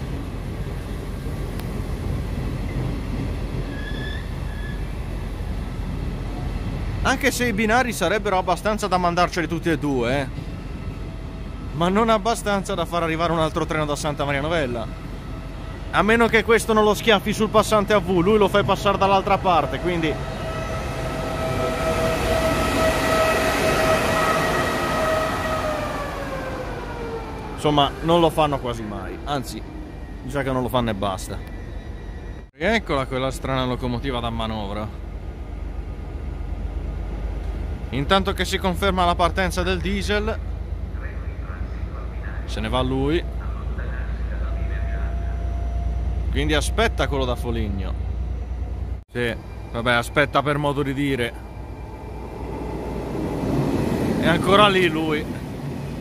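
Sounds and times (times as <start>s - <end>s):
train wheels rumbling on rail: 0.0s - 56.0s
faint high squeals: 3.6s - 5.0s, 29.6s - 32.5s
electric locomotive whine: 8.1s - 32.5s, 39.8s - 56.0s.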